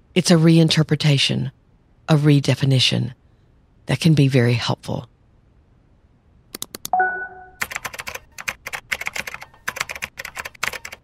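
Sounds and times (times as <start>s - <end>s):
bell-like ding: 7.0s - 7.6s
keyboard keys clacking: 7.0s - 11.0s.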